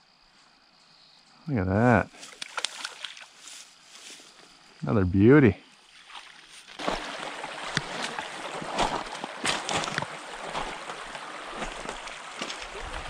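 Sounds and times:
stream water running: 1.9 - 4.8, 5.6 - 13.0
splashing and sloshing water: 2.1 - 4.2, 5.9 - 13.0.

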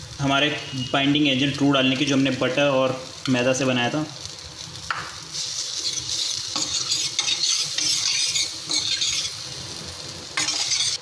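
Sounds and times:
roux sizzling in a pan: 0.0 - 11.0
spoon scraping a pan: 5.4 - 9.5, 10.4 - 11.0.

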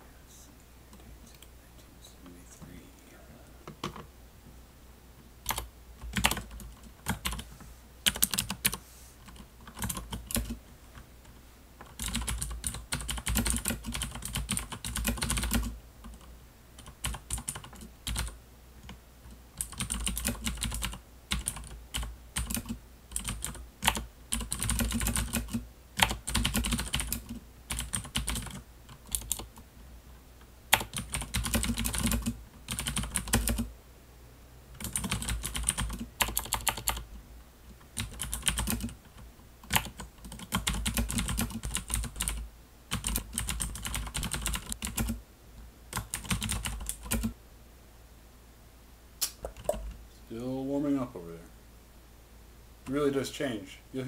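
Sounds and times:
computer keyboard typing: 3.7 - 4.1, 5.4 - 10.6, 11.8 - 19.0, 19.6 - 29.6, 30.7 - 33.7, 34.7 - 37.0, 37.9 - 45.2, 45.9 - 47.4, 49.5 - 49.9.

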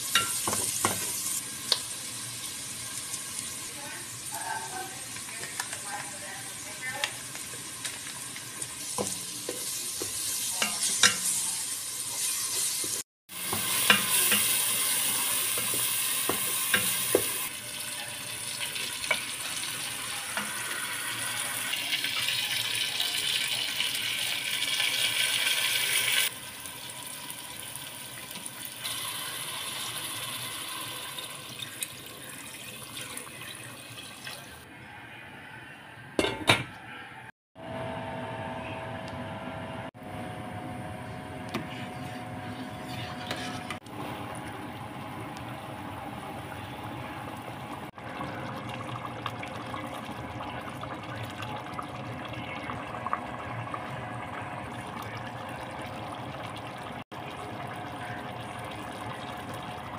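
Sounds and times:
food sizzling in oil: 0.0 - 34.6
wooden spoon stirring in pot: 4.7 - 17.4, 41.5 - 44.3.

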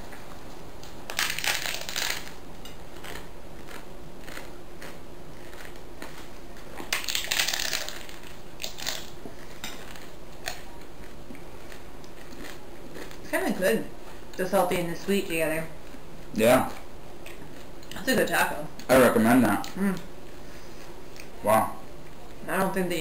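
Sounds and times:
chewing crackles: 0.1 - 13.3, 15.7 - 18.1, 18.8 - 22.4
taco shells crunching: 0.8 - 13.3.

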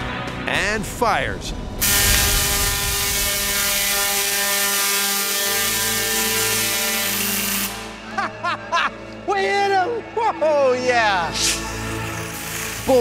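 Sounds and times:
tesla coil electrical buzz: 1.6 - 8.1, 11.4 - 13.0.

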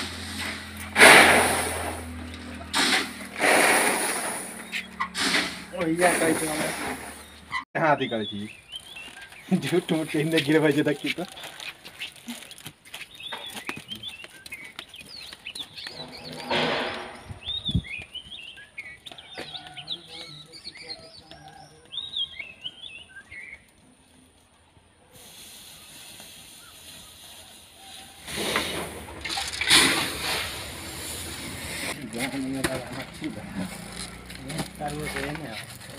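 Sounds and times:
steam hissing: 0.0 - 7.3, 25.1 - 32.0
small birds chirping: 4.2 - 28.4.

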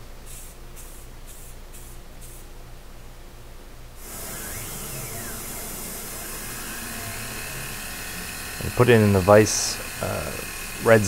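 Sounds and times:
aerosol spray paint hissing: 0.2 - 2.5, 4.0 - 11.0
milling machine cutting metal: 4.0 - 11.0.

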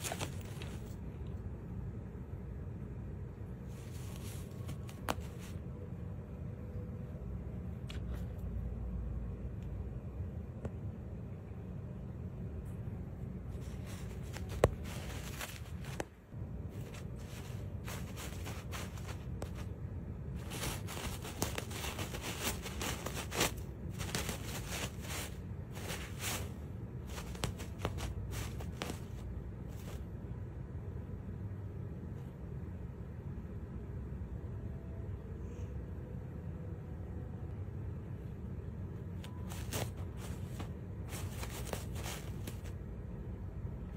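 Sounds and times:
paper napkins crinkling and tearing: 0.0 - 0.9, 13.6 - 16.0, 16.8 - 19.7, 20.4 - 30.0, 39.4 - 42.7
low steady hum: 0.0 - 43.9.

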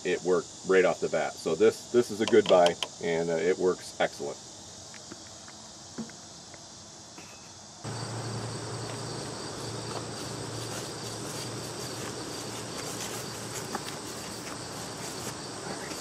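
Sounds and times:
insects buzzing: 0.0 - 16.0
low steady hum: 7.9 - 16.0.

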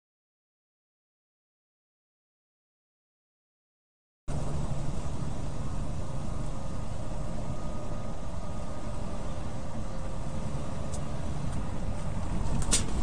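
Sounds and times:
truck cab road drone: 4.3 - 13.0.

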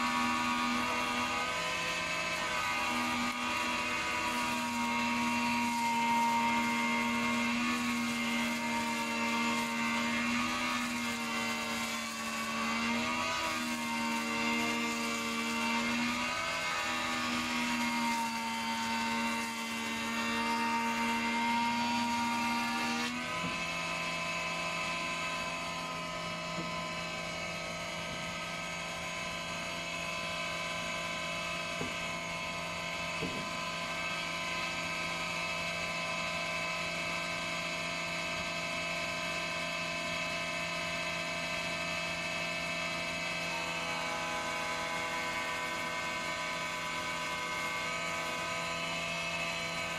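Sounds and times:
planer humming: 0.0 - 34.3
planer cutting board: 0.0 - 49.9.

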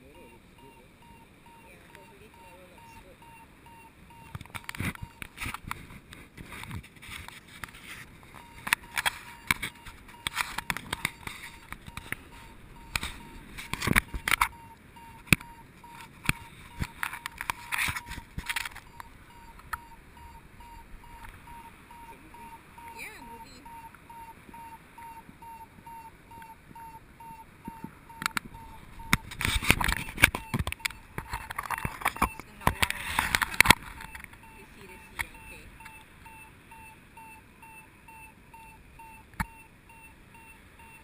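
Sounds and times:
variometer beeping: 0.0 - 5.6, 8.0 - 41.0.

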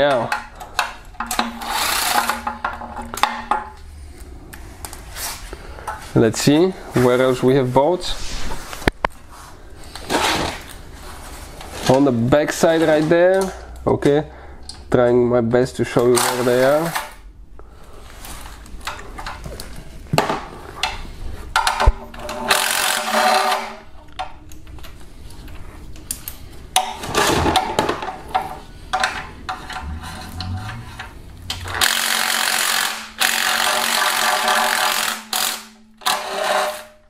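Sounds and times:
power ratchet spinning bolts: 1.6 - 2.4, 22.5 - 23.6, 31.6 - 36.8.

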